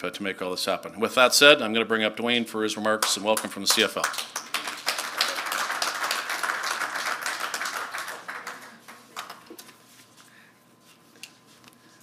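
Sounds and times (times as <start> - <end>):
audience applauding: 3.7 - 9.6.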